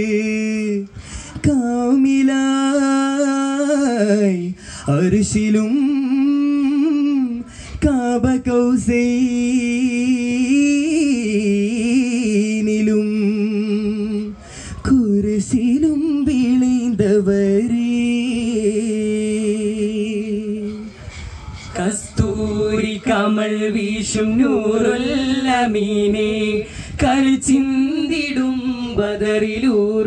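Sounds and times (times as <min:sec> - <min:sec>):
male group singing in unison: 0:21.6 - 0:30.0.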